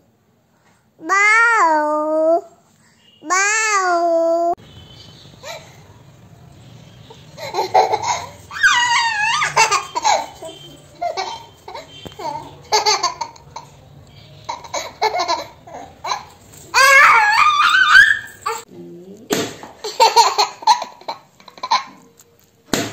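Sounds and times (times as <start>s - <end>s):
toddler laughing: 7.4s - 13.8s, 14.5s - 18.7s, 19.8s - 22.1s.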